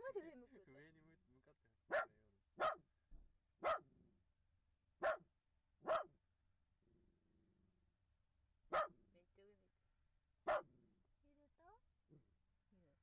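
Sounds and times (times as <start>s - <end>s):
dog barking: 1.9s - 2.9s, 3.6s - 3.9s, 5.0s - 6.2s, 8.7s - 9.0s, 10.4s - 10.8s.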